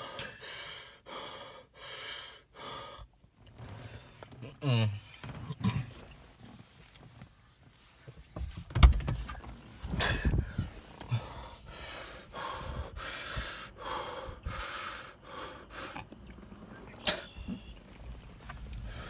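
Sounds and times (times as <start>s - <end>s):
person breathing hard: 0.0s - 3.2s, 10.0s - 16.1s, 18.7s - 19.0s.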